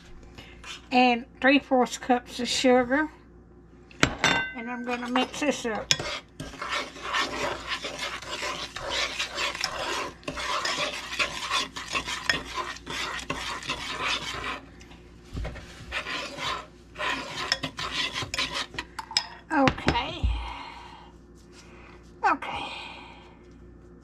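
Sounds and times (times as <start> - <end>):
fork scraping metal saucepan: 4.9 - 14.6, 15.9 - 19.3.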